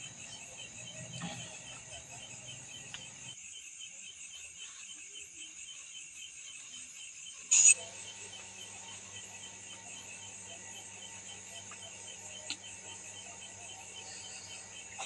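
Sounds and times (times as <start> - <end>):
night insects chirping: 0.0 - 15.0
faint low hum: 4.1 - 15.0.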